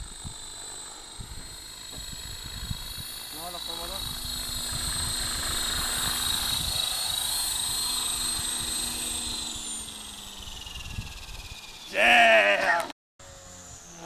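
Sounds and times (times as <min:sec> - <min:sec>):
wind rumble on microphone: 0:00.0 - 0:00.5, 0:01.2 - 0:09.0, 0:10.4 - 0:11.7
helicopter motor and rotor whine: 0:00.0 - 0:14.0.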